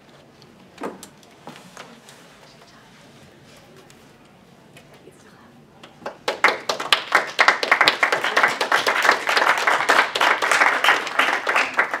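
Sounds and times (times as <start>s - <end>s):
people applauding: 6.0s - 12.0s.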